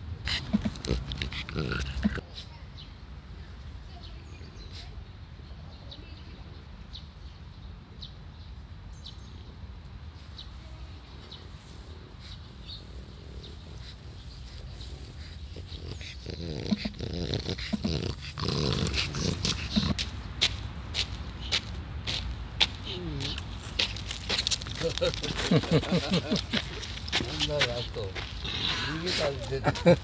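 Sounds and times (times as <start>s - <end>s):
dog grunting and breathing: 0.2s - 2.3s, 11.2s - 20.0s, 24.7s - 30.0s.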